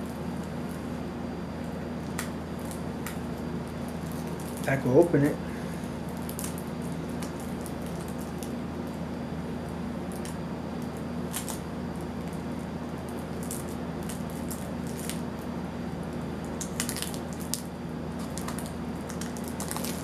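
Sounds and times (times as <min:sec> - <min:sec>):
plastic bag crinkling: 0:03.8 - 0:04.8, 0:16.6 - 0:20.0.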